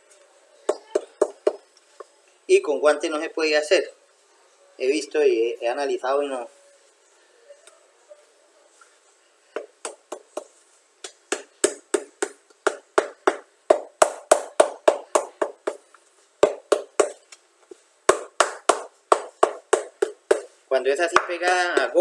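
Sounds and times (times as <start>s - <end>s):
hammer striking shoe sole: 18.1s - 20.5s.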